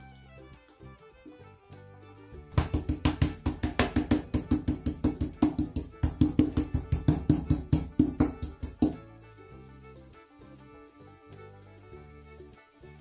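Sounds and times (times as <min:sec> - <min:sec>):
meat mallet pounding on wooden board: 0:02.5 - 0:09.0.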